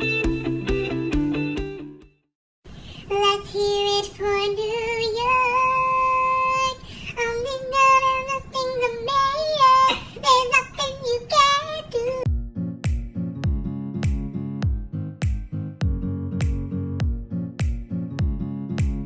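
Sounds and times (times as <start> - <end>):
guitar music: 0.0 - 2.2, 12.3 - 19.0.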